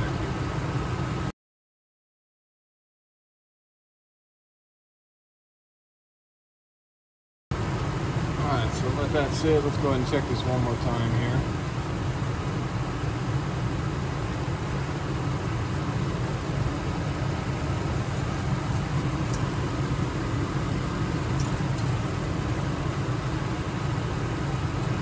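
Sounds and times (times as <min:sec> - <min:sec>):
truck engine idling: 0:00.0 - 0:01.3, 0:07.5 - 0:25.0.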